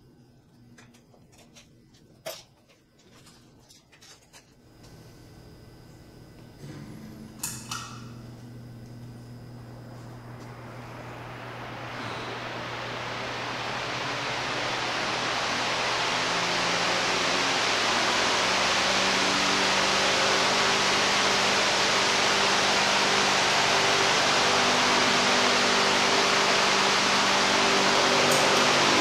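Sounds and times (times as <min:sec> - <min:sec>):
faint low hum: 0:00.0 - 0:17.1
fan blowing air: 0:04.6 - 0:29.0.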